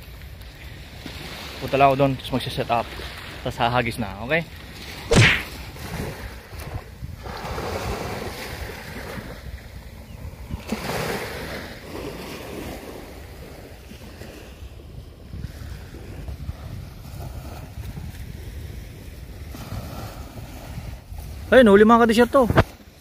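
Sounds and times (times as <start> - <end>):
small waves breaking on sand: 0.6 - 23.0
wind rumbling on microphone: 5.0 - 21.5.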